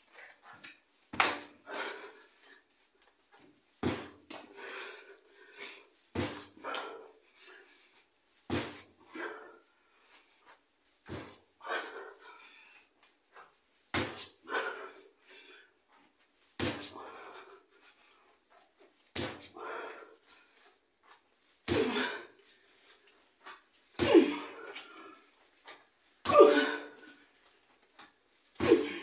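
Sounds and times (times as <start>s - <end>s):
person crying out or grunting: 24.0s - 24.6s, 26.3s - 27.0s, 28.6s - 29.0s.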